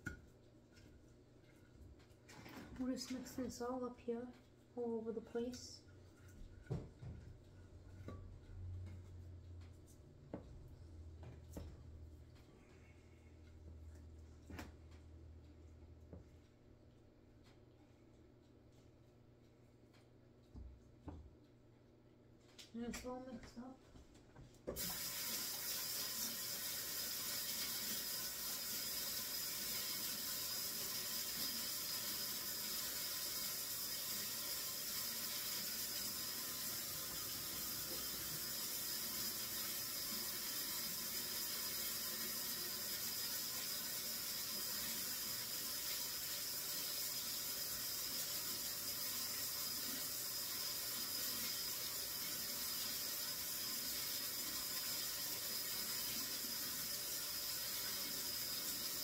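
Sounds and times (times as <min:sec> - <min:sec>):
tap water running: 0:24.7 - 0:59.0.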